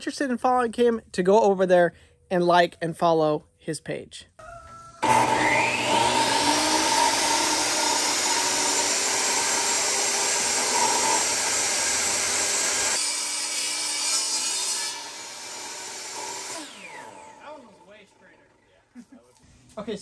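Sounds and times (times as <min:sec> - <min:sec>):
table saw cutting plywood: 0:05.0 - 0:17.9.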